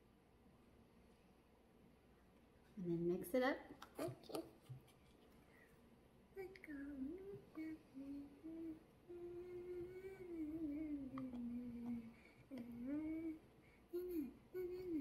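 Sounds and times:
person humming a tune: 6.4 - 15.0.

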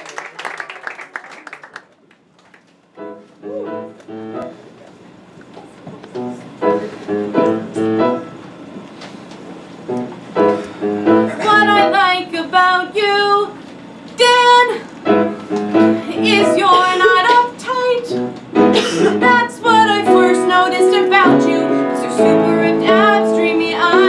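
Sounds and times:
piano chords: 2.9 - 4.8, 6.1 - 8.8, 9.8 - 12.9, 14.6 - 24.0
woman singing: 11.4 - 13.6, 14.2 - 14.9, 16.1 - 18.3, 19.0 - 24.0.

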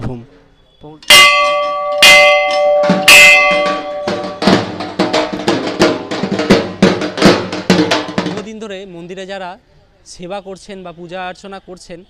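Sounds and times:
brass temple bell ringing: 1.0 - 5.3
music with quick drum beat: 1.1 - 8.6.

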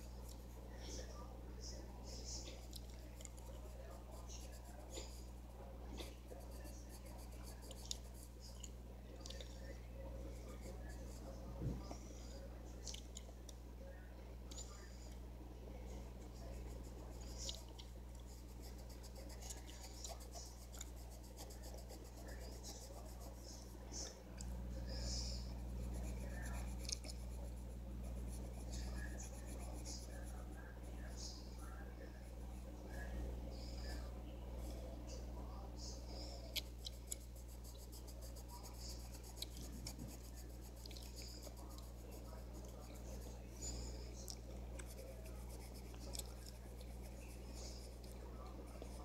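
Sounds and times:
steady low hum: 0.0 - 49.0
pencil scratching on paper: 3.2 - 5.4, 6.0 - 8.5, 18.2 - 23.6, 25.4 - 31.2, 36.9 - 43.8, 44.8 - 49.0.

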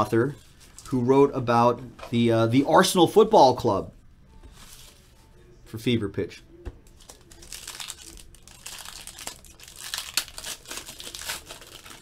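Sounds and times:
foil wrapper crinkling and tearing: 7.0 - 12.0.

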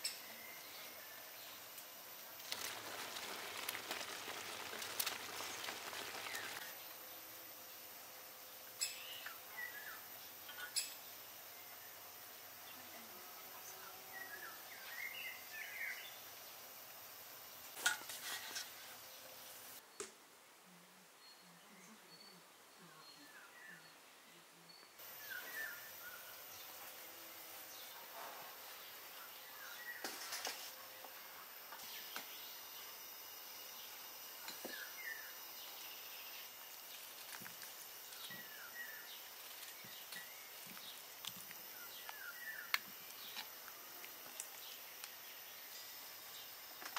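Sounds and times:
steady hiss: 0.0 - 19.8, 25.0 - 46.9
outdoor ambience: 0.0 - 46.9
small bird chirping: 2.3 - 7.1
bird chirps: 24.7 - 26.8.

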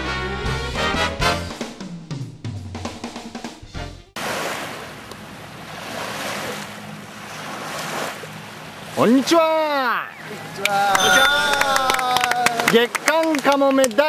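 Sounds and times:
small waves on shore: 4.2 - 10.7
drum and brass jingle: 11.0 - 12.2.

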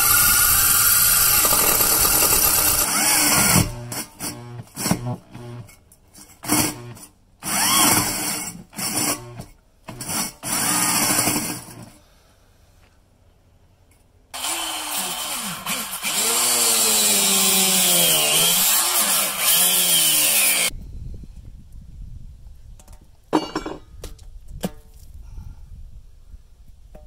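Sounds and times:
power tool running under load: 0.0 - 5.6, 6.5 - 11.9, 14.4 - 20.7.

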